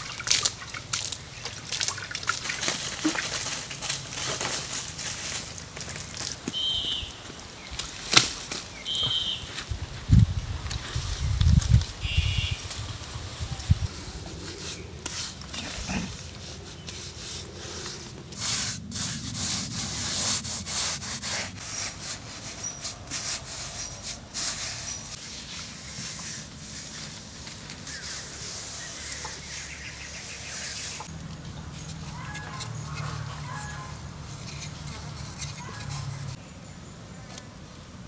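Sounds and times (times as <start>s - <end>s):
hand smoothing wet mud plaster: 13.6s - 31.1s.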